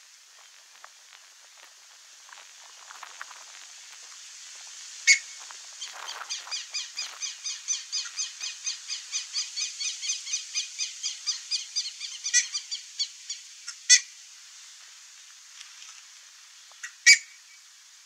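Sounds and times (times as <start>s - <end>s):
ibis calling: 5.1s - 14.0s.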